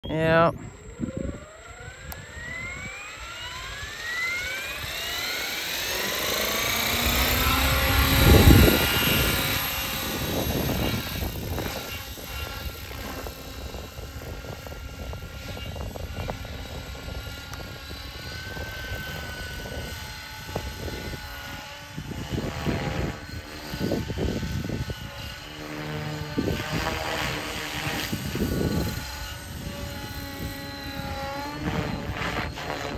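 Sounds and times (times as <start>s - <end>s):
helicopter motor whine: 0.0s - 32.9s
rotor blades whooshing: 0.8s - 14.4s.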